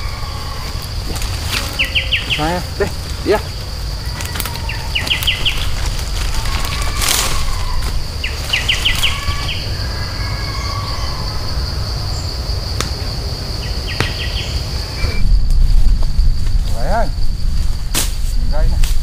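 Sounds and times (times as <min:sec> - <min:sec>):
insects droning: 0:00.0 - 0:19.0
low rumble: 0:14.9 - 0:18.8.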